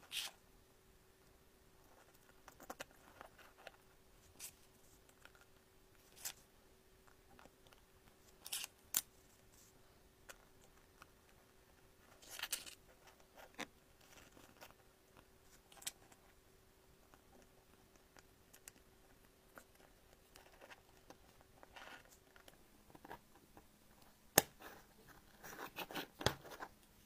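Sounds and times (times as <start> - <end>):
faint steady hum: 0.0 - 27.0
staple strips scraping: 8.4 - 9.1.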